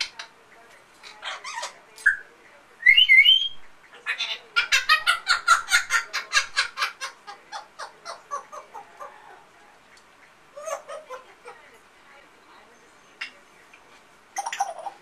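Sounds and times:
parrot whistling and calling: 1.2 - 6.1.

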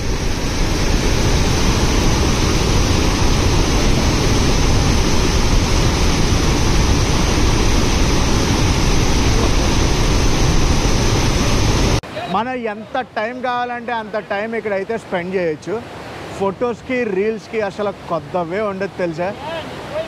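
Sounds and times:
waterfall rushing: 0.0 - 20.0.

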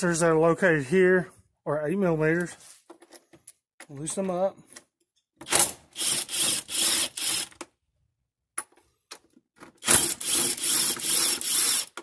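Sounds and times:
cordless driver spinning: 6.0 - 7.6, 9.8 - 12.0.

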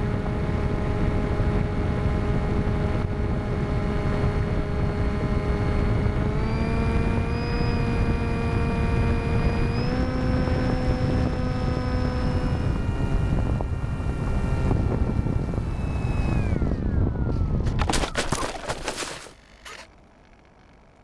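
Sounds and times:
electric motor and propeller whining: 0.0 - 21.0
model plane scraping through stubble: 17.6 - 21.0.

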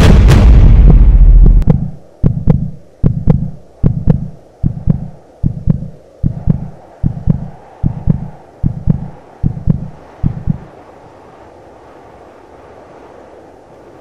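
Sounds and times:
heartbeat thumps: 0.0 - 10.7
faint hum: 0.0 - 14.0.

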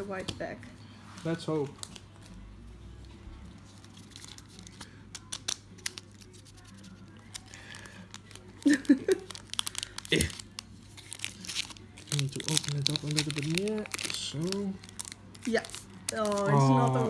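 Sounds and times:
foil wrapper crinkling and tearing: 3.7 - 17.0.

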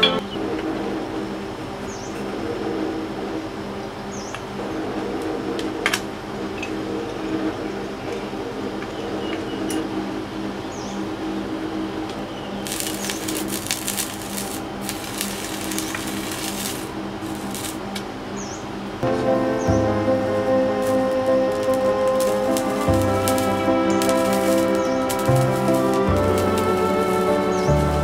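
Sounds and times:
crackling: 12.6 - 18.2, 19.0 - 28.0.

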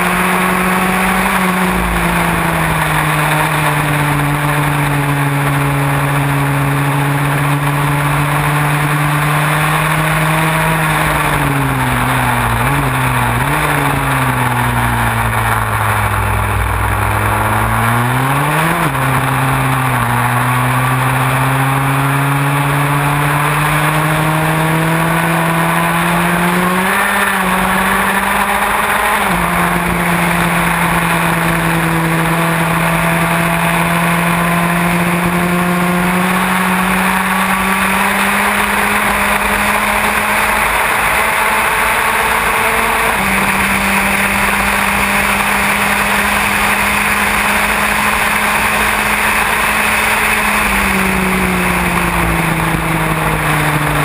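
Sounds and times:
racing car engine full throttle: 0.0 - 54.0.

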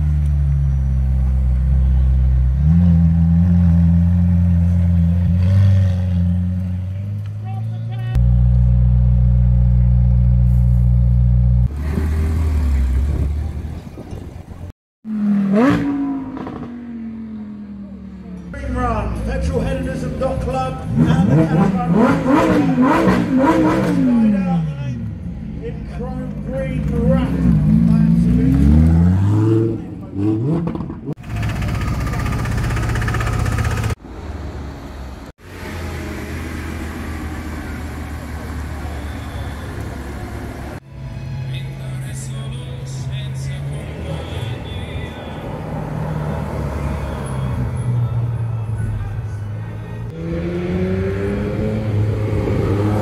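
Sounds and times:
car engine idling: 31.2 - 34.2.

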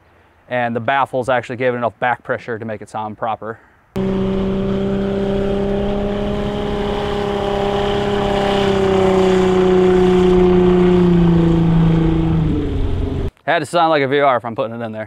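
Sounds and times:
speedboat engine running: 4.0 - 13.3.

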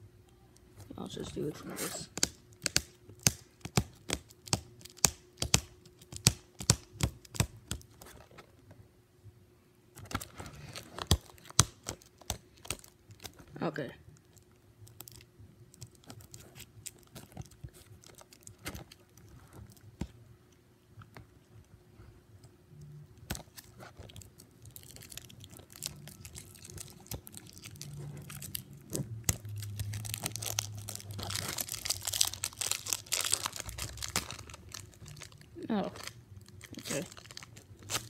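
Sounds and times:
plastic wrap crinkling and tearing: 10.0 - 13.5, 14.2 - 19.8, 23.2 - 38.0.

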